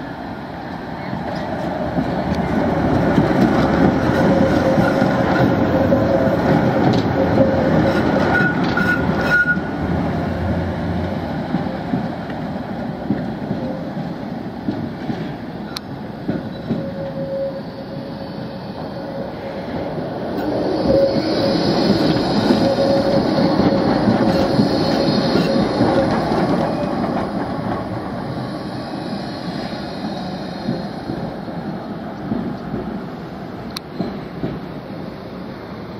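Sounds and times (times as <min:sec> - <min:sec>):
trams rolling with motor whine: 0:00.0 - 0:35.9
tram wheels squealing: 0:00.9 - 0:12.1, 0:15.6 - 0:31.6, 0:33.9 - 0:35.0.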